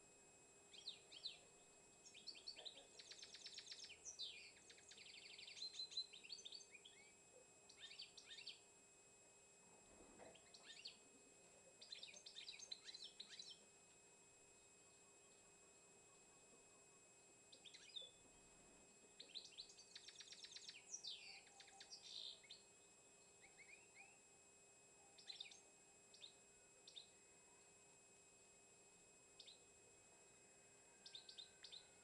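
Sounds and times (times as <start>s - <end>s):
songbird chirping and trilling: 0.7s - 8.7s, 10.3s - 11.1s, 11.8s - 13.7s, 14.6s - 24.4s, 25.0s - 27.8s, 29.4s - 29.7s, 30.4s - 32.0s.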